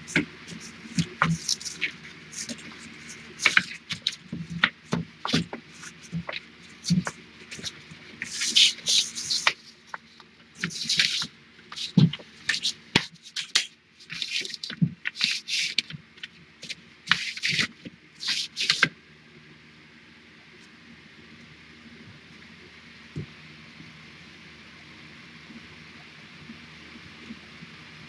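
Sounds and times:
poster board scraping against wire: 0.0s - 18.9s.

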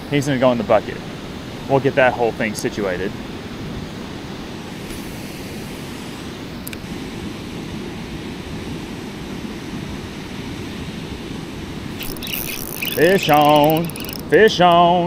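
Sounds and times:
water rushing from spillway: 0.0s - 15.0s
patter of clicks: 12.0s - 14.8s.

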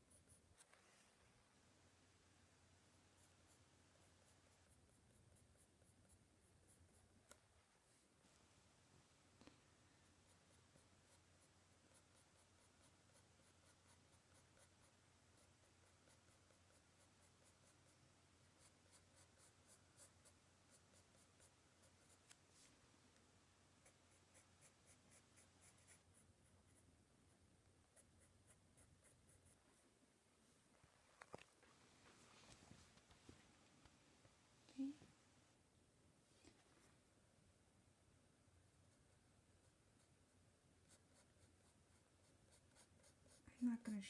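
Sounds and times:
pencil scratching on paper: 10.0s - 22.7s, 23.8s - 29.8s, 40.8s - 43.8s.

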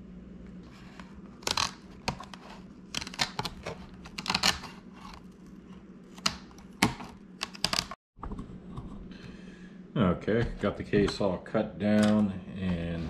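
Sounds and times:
snips cutting plastic: 1.4s - 5.2s.

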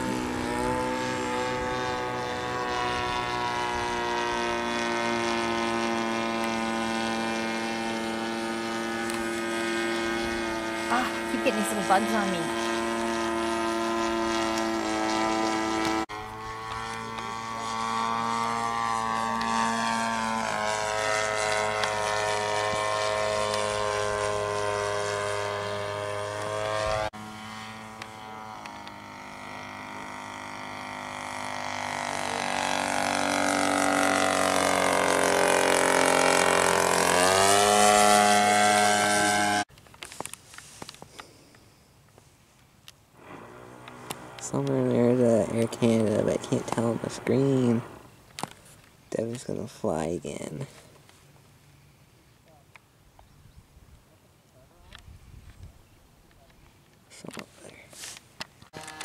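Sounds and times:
model airplane motor droning: 0.0s - 42.2s, 42.9s - 52.8s, 54.8s - 59.0s.

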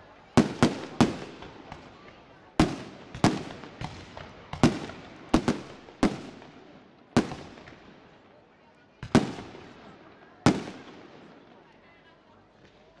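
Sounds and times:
fireworks bangs: 0.4s - 8.0s, 9.0s - 11.4s.

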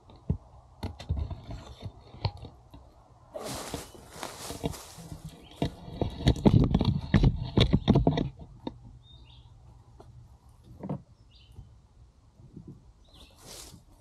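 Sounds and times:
loud rustling and crackling: 3.4s - 6.6s
bird chirping: 9.0s - 9.6s, 11.1s - 11.8s, 13.0s - 13.6s.

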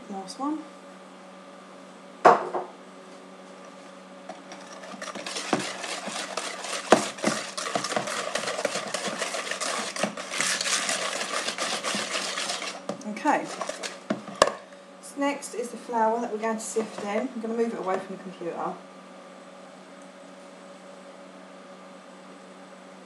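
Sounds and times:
whisk clicking against plastic bowl: 4.6s - 14.3s.

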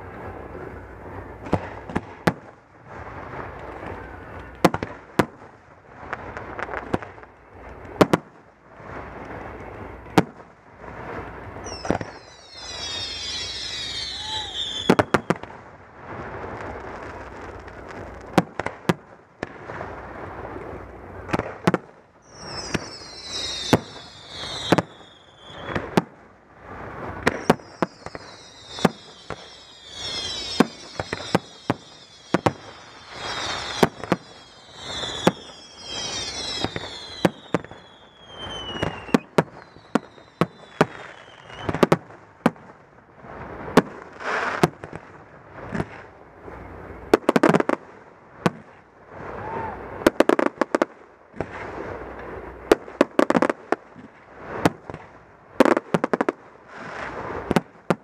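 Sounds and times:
firework whistles sliding down: 11.0s - 15.4s, 22.2s - 26.0s, 26.8s - 42.0s
firework shells bursting: 27.1s - 42.6s.

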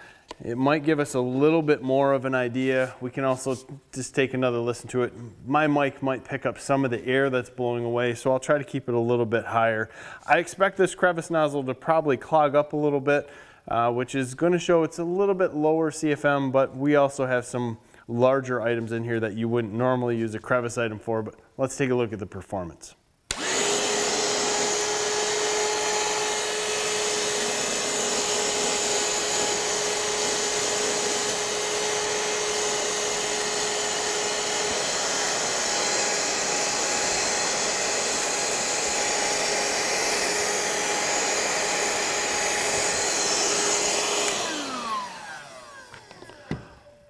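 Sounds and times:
hand vacuum whining: 23.3s - 47.0s
vacuum motor winding down: 23.3s - 47.0s.

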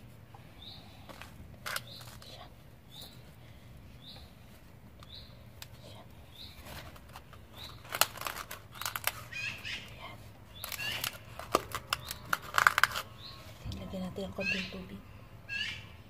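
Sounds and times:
plastic bottle crinkling: 1.1s - 3.2s, 6.4s - 13.7s
small bird chirping: 1.8s - 3.3s, 3.9s - 4.4s, 5.0s - 13.6s.

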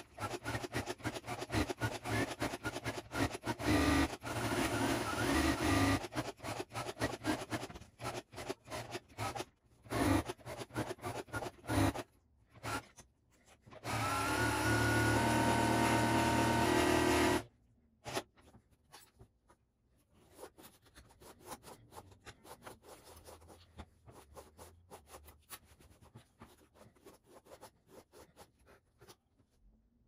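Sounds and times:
sewing machine stitching: 0.0s - 13.0s, 13.7s - 18.3s.

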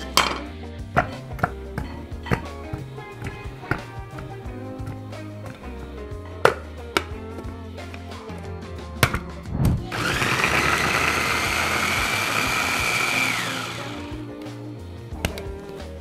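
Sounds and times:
food chopper motor whine: 9.9s - 14.2s.

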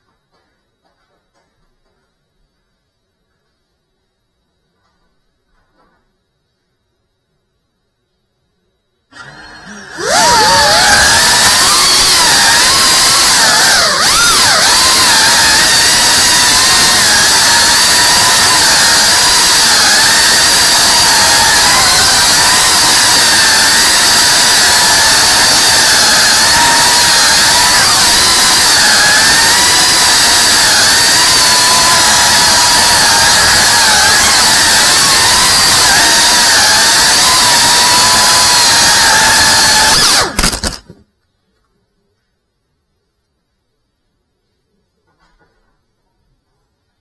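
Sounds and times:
drone motors whining: 9.1s - 40.9s.

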